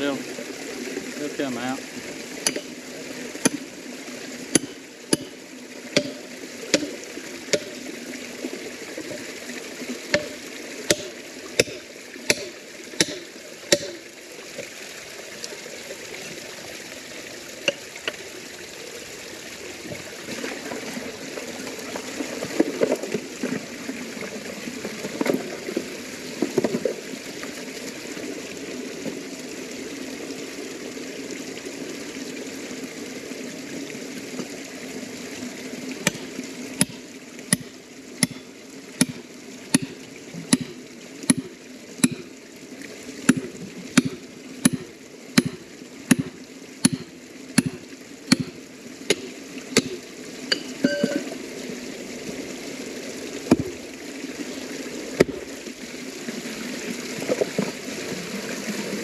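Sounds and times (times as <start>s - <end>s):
water running through overflow: 0.0s - 59.0s
sharp knocks: 6.0s - 6.9s, 10.1s - 14.0s.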